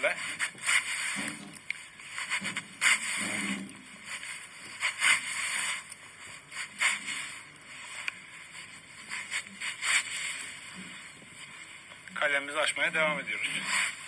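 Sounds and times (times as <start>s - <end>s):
knife scraping wood: 0.3s - 7.8s.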